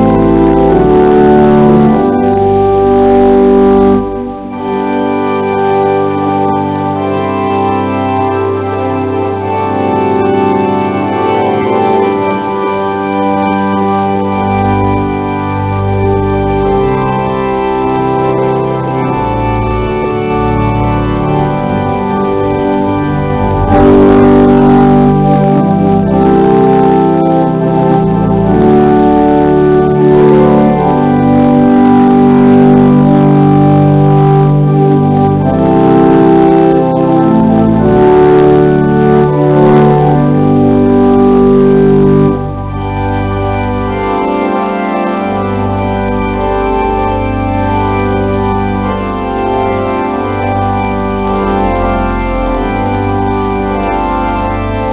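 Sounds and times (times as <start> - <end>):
pipe organ playing chords: 0.0 - 54.9.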